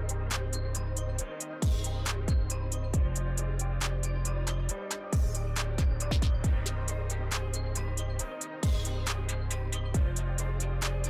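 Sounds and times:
deep held bass: 0:00.0 - 0:11.0
hi-hat ticks: 0:00.0 - 0:11.0
kick drum hit: 0:01.6 - 0:03.2, 0:05.2 - 0:06.6, 0:08.6 - 0:08.8.

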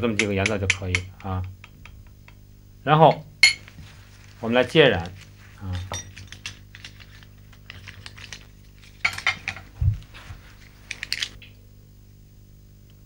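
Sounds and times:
porcelain dishes clinking: 0:03.1 - 0:03.7, 0:05.6 - 0:07.0.

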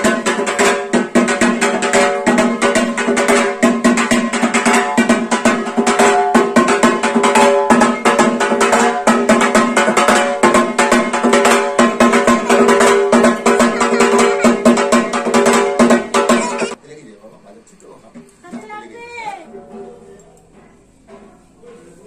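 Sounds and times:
fast percussion beat: 0:00.0 - 0:16.8
held melodic tones: 0:00.0 - 0:16.8.

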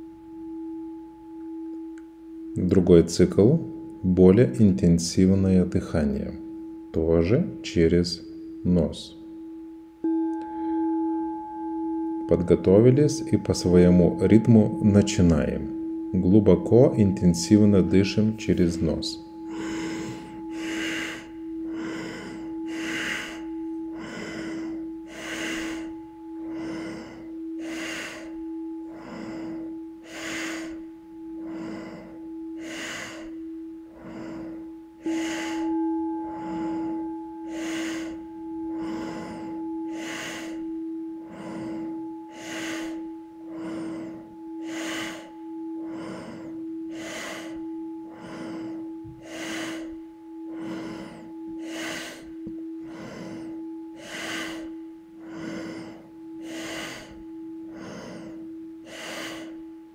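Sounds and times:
singing bowl ringing: 0:00.0 - 0:59.9
deep breaths through the nose: 0:19.3 - 0:59.7.

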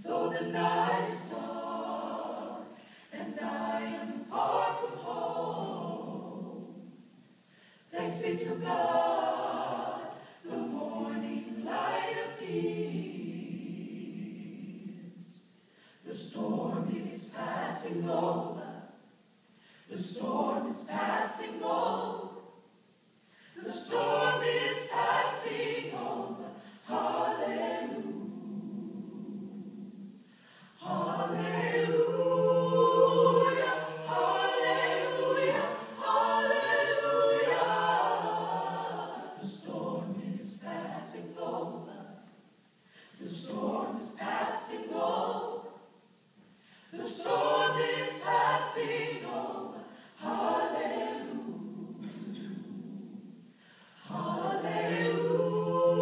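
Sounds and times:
choir singing a cappella: 0:00.0 - 0:56.0.

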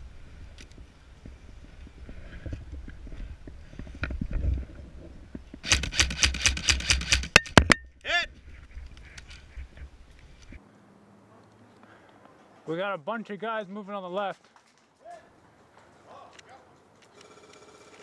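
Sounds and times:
airsoft rifle firing rapid shots: 0:05.6 - 0:07.4.

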